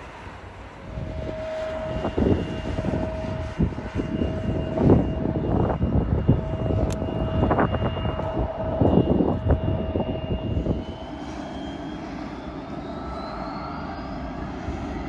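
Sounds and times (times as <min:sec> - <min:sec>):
jet engine rumble: 0:00.0 - 0:15.0
jet engine whine: 0:00.0 - 0:15.0.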